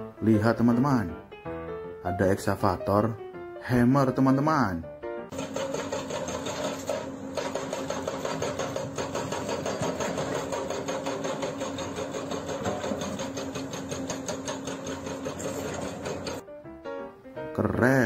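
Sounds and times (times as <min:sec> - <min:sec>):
hydraulic breaker pounding rock: 0:05.3 - 0:16.4.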